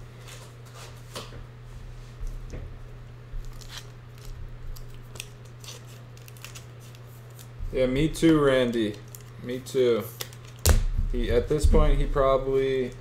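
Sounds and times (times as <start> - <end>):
paper rustling and crinkling: 3.4 - 10.6.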